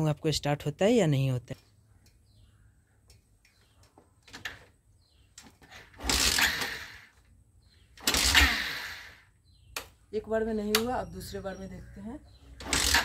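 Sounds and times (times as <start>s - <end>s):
motorcycle engine kick-started: 5.7s - 7.1s, 8.0s - 9.2s, 12.6s - 13.0s.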